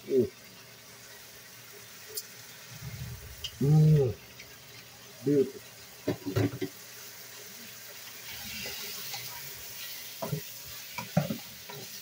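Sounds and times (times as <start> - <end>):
chicken sizzling in a wok: 0.0 - 12.0
wooden spatula knocking a pan: 10.2 - 11.4.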